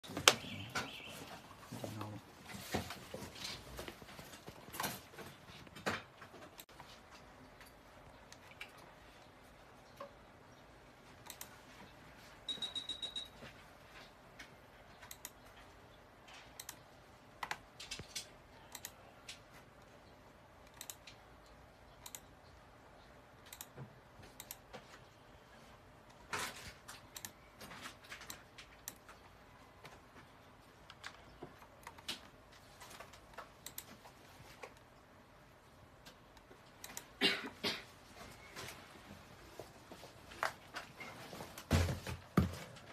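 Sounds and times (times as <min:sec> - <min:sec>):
mouse and keyboard clicking: 0:11.2 - 0:11.6, 0:15.0 - 0:15.5, 0:16.2 - 0:19.5, 0:20.6 - 0:22.3, 0:23.4 - 0:24.8, 0:26.9 - 0:27.5, 0:30.8 - 0:34.9.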